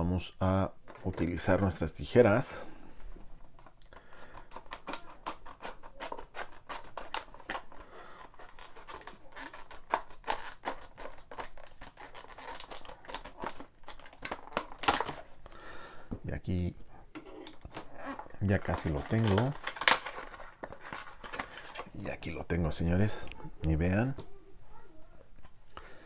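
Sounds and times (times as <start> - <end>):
scissors snipping plastic: 3.8 - 15.3, 17.2 - 21.9.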